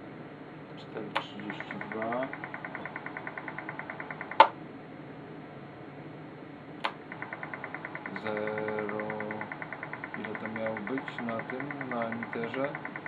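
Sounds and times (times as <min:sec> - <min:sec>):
fast ticking buzz: 0:01.3 - 0:04.5, 0:06.9 - 0:13.0.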